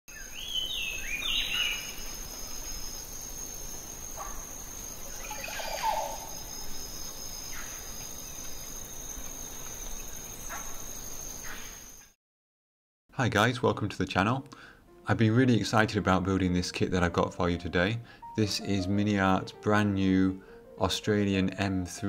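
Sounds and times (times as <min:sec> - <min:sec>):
birds calling: 0:00.1 - 0:02.3, 0:04.2 - 0:07.9
insects trilling: 0:00.1 - 0:12.1.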